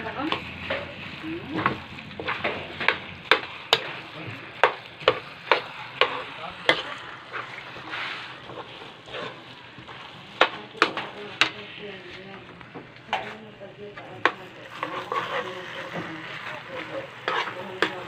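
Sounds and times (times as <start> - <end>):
utensil scraping a metal pan: 0.0 - 12.3, 13.1 - 18.0
food sizzling: 0.0 - 18.0
sharp knocks on a pan: 1.6 - 3.9, 4.6 - 6.8.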